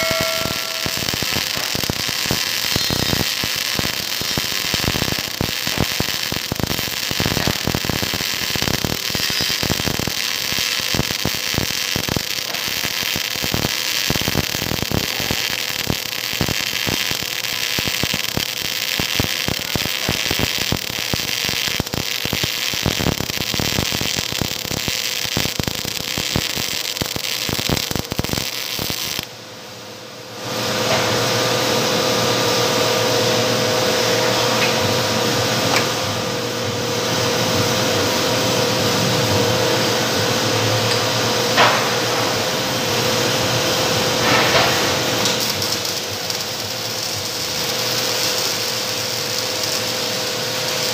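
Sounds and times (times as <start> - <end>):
welder arc crackling: 0.0 - 29.3, 40.9 - 50.9.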